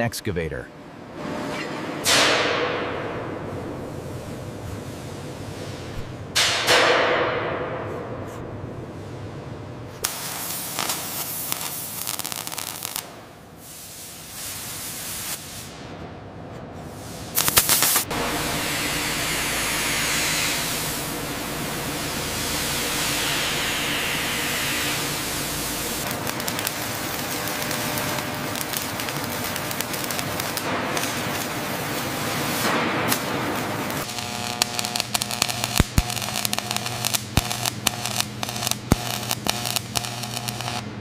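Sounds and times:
electric welding hum: 8.5s - 15.9s, 17.0s - 41.0s
arc welding crackles: 10.0s - 15.8s, 17.2s - 41.0s
hiss of sparks: 10.0s - 15.8s, 17.0s - 40.8s.

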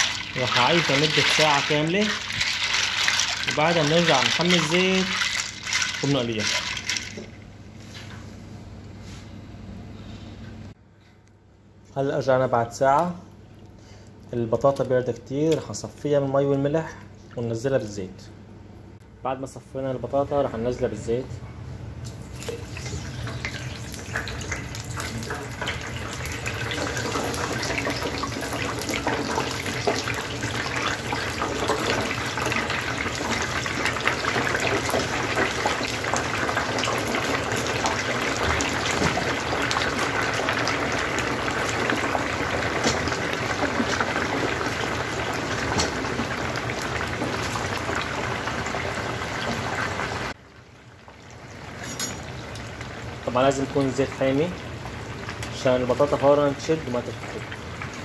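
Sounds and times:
oil sizzling in deep fryer: 0.0s - 7.4s, 22.0s - 58.0s.

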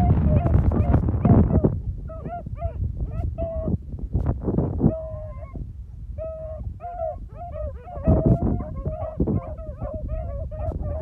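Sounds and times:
hounds baying: 0.0s - 3.7s, 4.8s - 5.6s, 6.2s - 11.0s.

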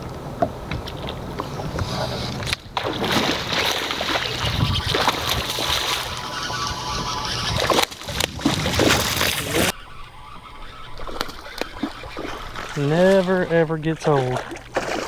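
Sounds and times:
fish thrashing and splashing: 2.3s - 9.8s, 10.6s - 15.0s.

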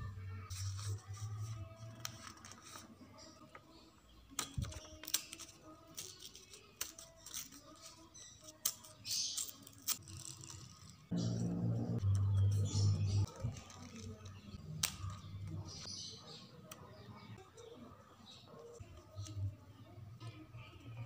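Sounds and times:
background music: 0.0s - 21.0s
paper cards clicking and tapping: 4.3s - 8.0s.

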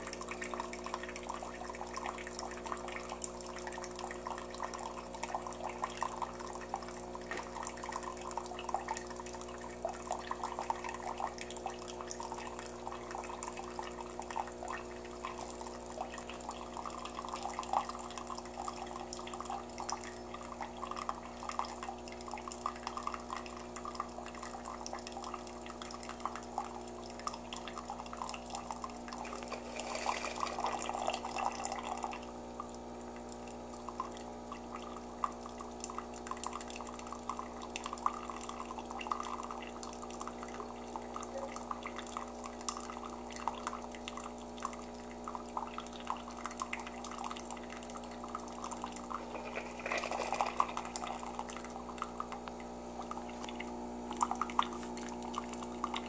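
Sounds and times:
coffee maker hum: 0.0s - 56.0s
coffee trickling into a mug: 0.0s - 56.0s.

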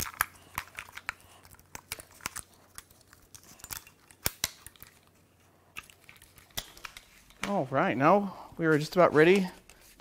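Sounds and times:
plastic clicks and snaps: 0.0s - 5.1s.

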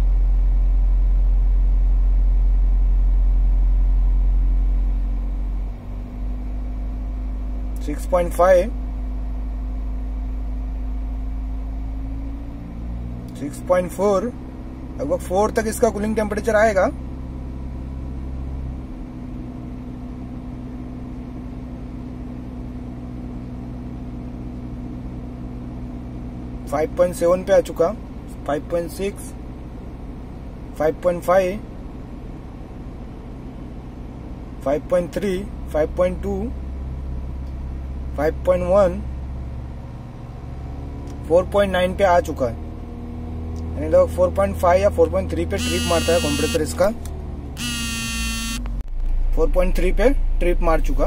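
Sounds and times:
diesel engine idling hum: 0.0s - 51.0s
diesel engine idling: 45.1s - 51.0s.

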